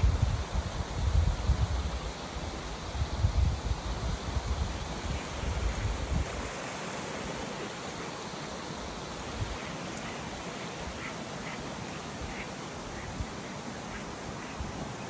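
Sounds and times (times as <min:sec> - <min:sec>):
wind buffeting microphone: 0:00.0 - 0:07.8
waterfall rushing: 0:04.7 - 0:15.0.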